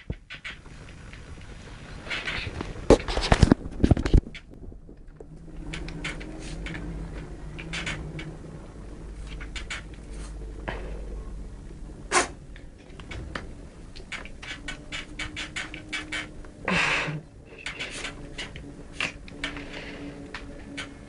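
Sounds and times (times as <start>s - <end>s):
claws clicking and knocking: 0.0s - 8.4s, 9.2s - 10.8s, 12.2s - 16.5s, 17.6s - 21.0s
low steady hum: 0.0s - 21.0s
animals scuffling: 17.5s - 21.0s.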